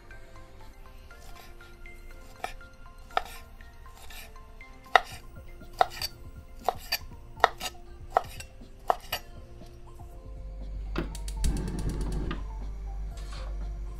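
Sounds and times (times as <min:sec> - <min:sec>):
knife chopping on wooden board: 0:02.3 - 0:03.4, 0:04.9 - 0:05.2, 0:05.8 - 0:09.2.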